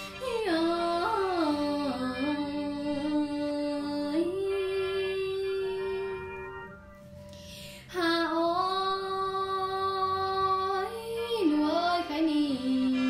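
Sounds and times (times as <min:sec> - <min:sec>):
woman singing long note: 0:00.0 - 0:06.7, 0:07.9 - 0:13.0.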